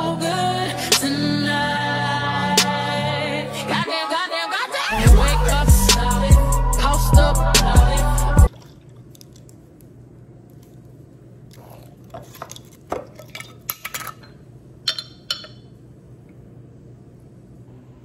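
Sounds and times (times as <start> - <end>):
glass jar taps and clinks: 12.4 - 15.7.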